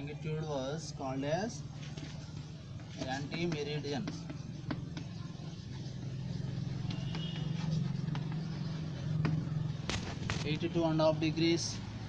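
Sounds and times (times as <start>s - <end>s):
chalk writing on blackboard: 2.9s - 9.4s.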